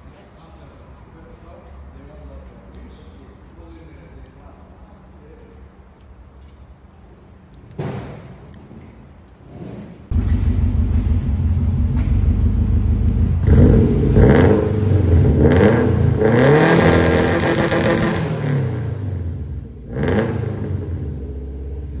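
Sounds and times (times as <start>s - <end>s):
car engine revving through exhaust: 10.1s - 22.0s.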